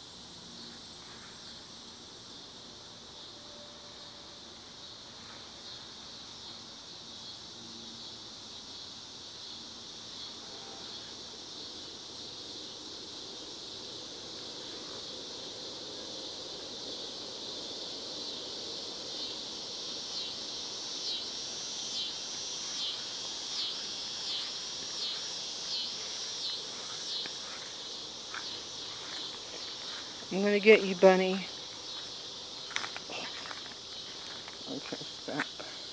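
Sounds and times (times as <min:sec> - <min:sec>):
pulsing insect call: 0:00.0 - 0:35.9
high-pitched insect buzzing: 0:19.1 - 0:35.9.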